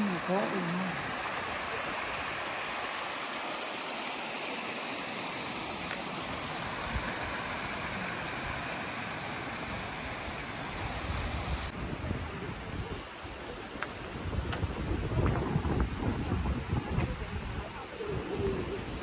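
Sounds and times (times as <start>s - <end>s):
stream rushing over rocks: 0.0s - 19.0s
wind rumble on microphone: 11.0s - 13.4s, 14.0s - 19.0s.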